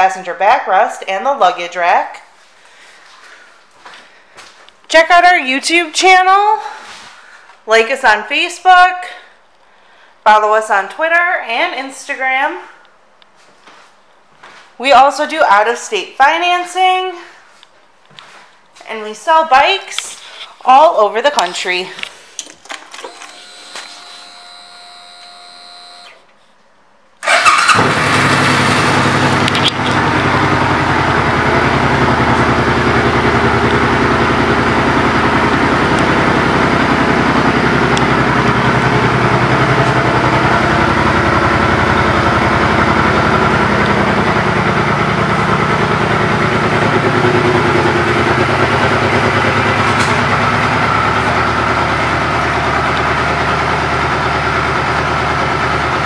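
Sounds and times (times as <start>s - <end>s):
motorcycle engine starting and idling: 22.6s - 26.3s, 27.2s - 56.0s.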